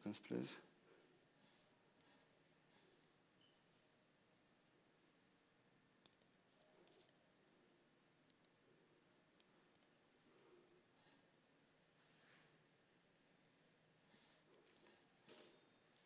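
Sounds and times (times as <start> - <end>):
quiet clicks: 6.0 - 7.2, 8.3 - 8.6, 9.4 - 10.0.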